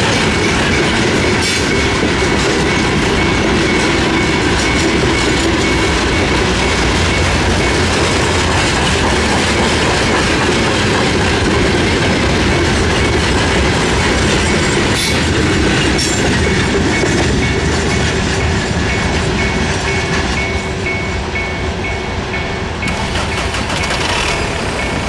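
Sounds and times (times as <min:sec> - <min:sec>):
freight wagons rolling on rails: 0:00.0 - 0:21.4, 0:22.8 - 0:25.0
level crossing signal beeping: 0:00.4 - 0:08.5
wheel clatter: 0:22.9 - 0:25.0.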